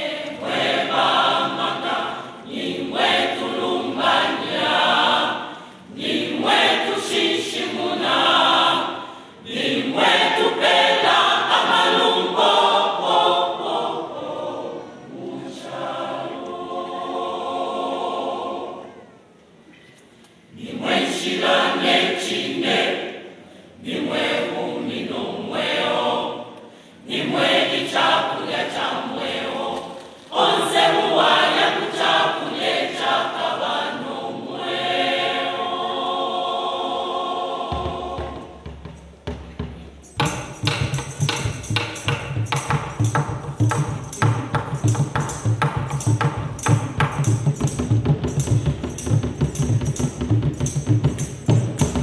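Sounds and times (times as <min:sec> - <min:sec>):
choir singing in harmony: 0:00.0 - 0:19.4, 0:20.4 - 0:52.0
hand drums fast beat: 0:37.7 - 0:52.0.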